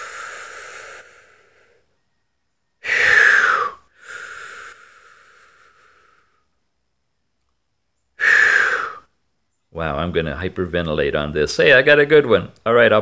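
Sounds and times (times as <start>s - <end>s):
man breathing deeply: 0.0s - 6.7s, 8.2s - 9.2s.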